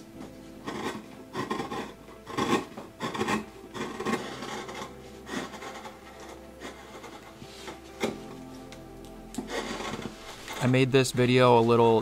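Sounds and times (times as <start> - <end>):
carving gouge scraping wood: 0.6 - 8.2, 9.4 - 10.6.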